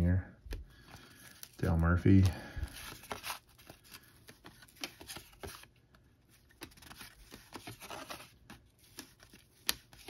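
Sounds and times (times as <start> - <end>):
cards flicking and rubbing: 2.1 - 5.8, 6.4 - 10.0.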